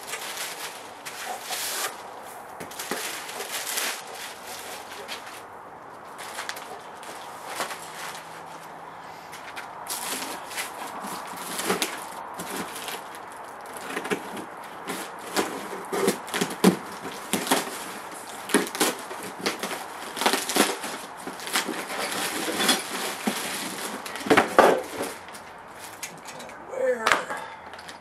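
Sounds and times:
plastic packaging crinkling: 0:00.0 - 0:08.8, 0:09.9 - 0:26.0.

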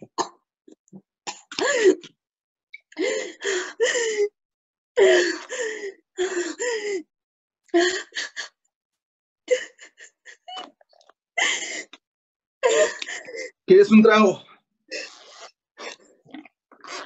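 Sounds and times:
person sobbing: 0:05.0 - 0:07.0, 0:12.6 - 0:13.6
gasps and sniffles: 0:14.9 - 0:17.0.

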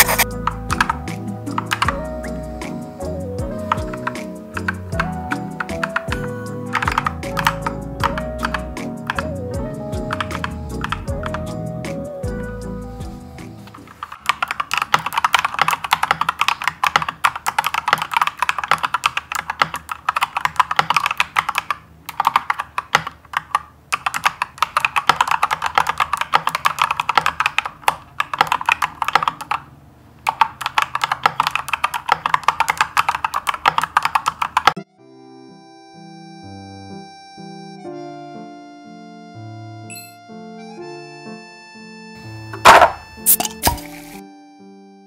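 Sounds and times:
mechanical keyboard typing: 0:00.0 - 0:02.1, 0:03.5 - 0:09.4, 0:10.0 - 0:11.6, 0:13.8 - 0:34.8
faint background music: 0:00.0 - 0:14.0.

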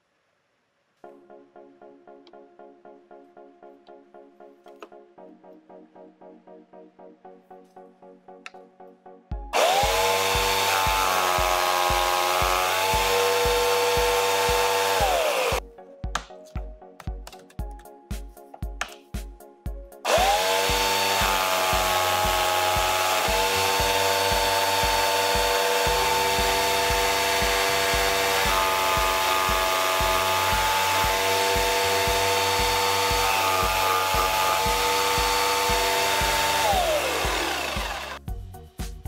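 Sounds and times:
scroll saw whining: 0:09.6 - 0:15.6, 0:20.1 - 0:38.2.

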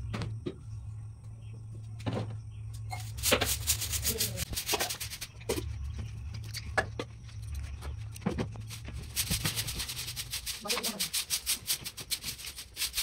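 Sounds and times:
steady low hum: 0:00.0 - 0:13.0
broom sweeping concrete floor: 0:02.9 - 0:05.6, 0:08.5 - 0:13.0.

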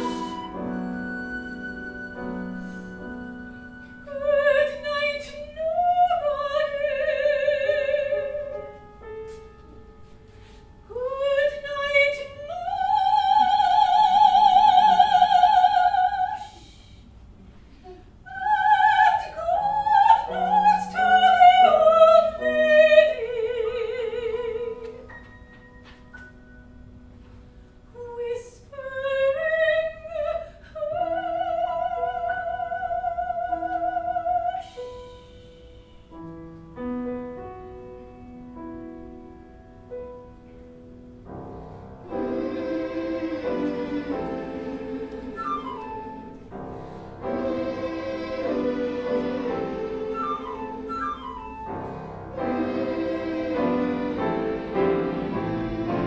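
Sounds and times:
children's choir singing: 0:00.0 - 0:00.9, 0:42.0 - 0:56.0
operatic soprano singing: 0:00.0 - 0:08.6, 0:10.8 - 0:16.8, 0:18.2 - 0:25.1, 0:27.9 - 0:35.4, 0:42.1 - 0:46.5, 0:47.2 - 0:51.7, 0:52.3 - 0:56.0
piano accompaniment: 0:00.0 - 0:16.5, 0:18.6 - 0:28.5, 0:31.2 - 0:56.0
instrumental passage: 0:41.3 - 0:56.0.

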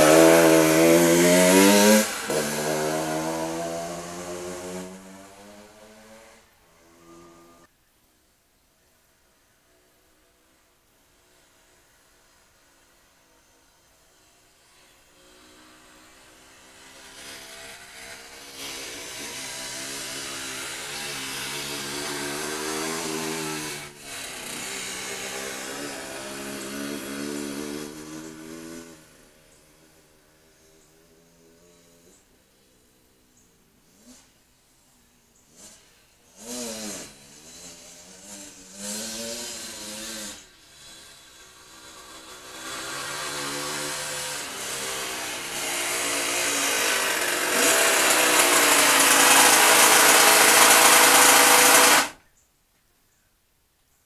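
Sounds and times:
engine approaching: 0:00.0 - 0:07.7, 0:15.2 - 0:32.9, 0:35.0 - 0:52.2.

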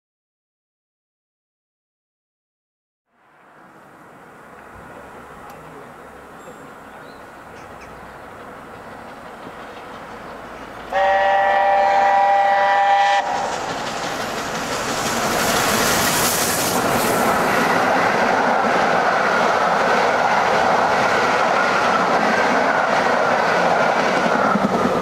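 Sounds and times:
train rushing past: 0:03.1 - 0:25.0
wheels clattering on rails: 0:04.5 - 0:11.0, 0:13.2 - 0:25.0
steam locomotive chime whistle: 0:10.9 - 0:13.5.

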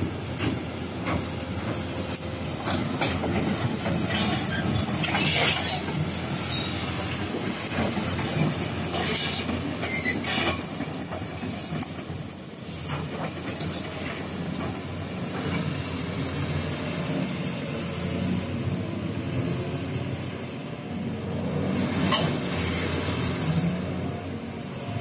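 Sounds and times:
steel tracks clanking and squealing: 0:00.0 - 0:17.1, 0:21.8 - 0:23.0.

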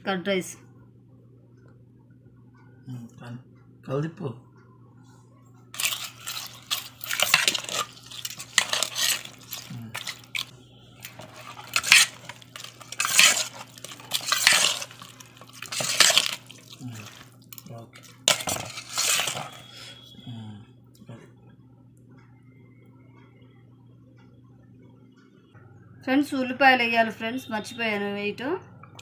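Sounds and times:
steady low hum: 0:00.0 - 0:29.0
metal ladle scraping a steel bowl: 0:05.8 - 0:17.2, 0:18.3 - 0:20.0.

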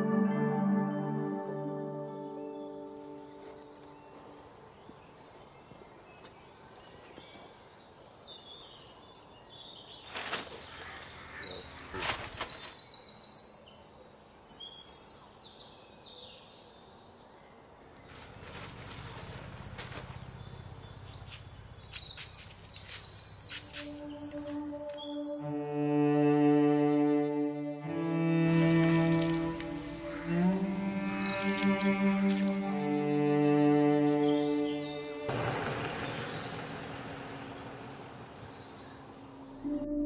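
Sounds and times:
small birds chirping: 0:02.1 - 0:26.0, 0:28.6 - 0:39.7
outdoor background noise: 0:02.6 - 0:25.7, 0:28.1 - 0:39.8.

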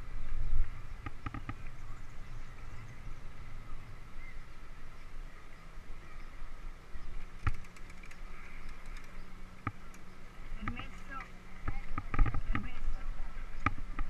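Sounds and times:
wind and rolling rumble: 0:00.0 - 0:14.0.

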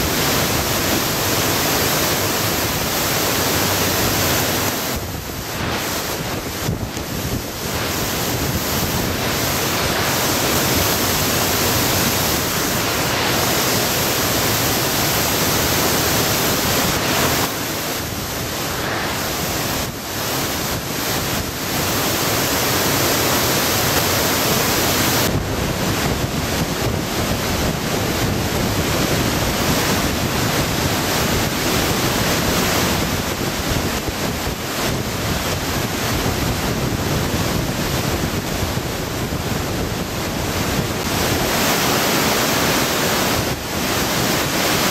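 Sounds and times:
river roaring in torrent: 0:00.0 - 0:44.9
wind and driving rain: 0:00.0 - 0:44.9
wind buffeting microphone: 0:04.1 - 0:13.4, 0:25.0 - 0:41.9.

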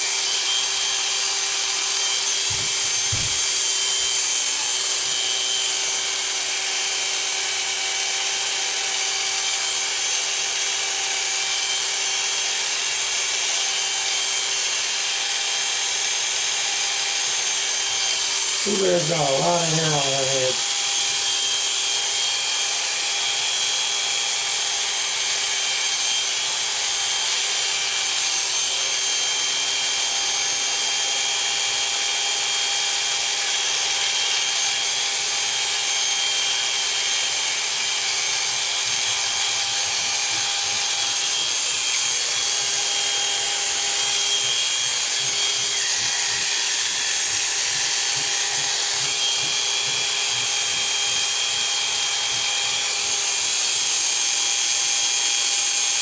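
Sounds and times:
electric hair clippers buzzing: 0:00.0 - 0:56.0.

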